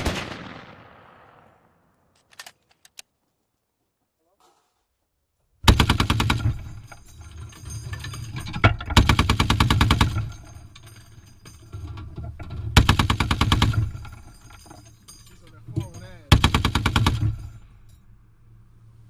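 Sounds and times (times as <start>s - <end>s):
heavy machine gun bursts: 5.6s - 17.7s.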